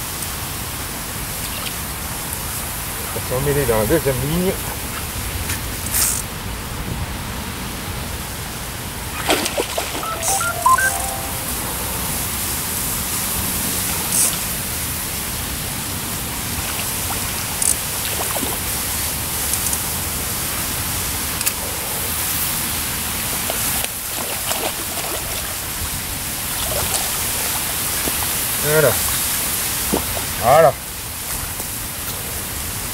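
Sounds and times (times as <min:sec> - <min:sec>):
fish splashing at surface: 0:09.2 - 0:10.2, 0:26.4 - 0:30.4.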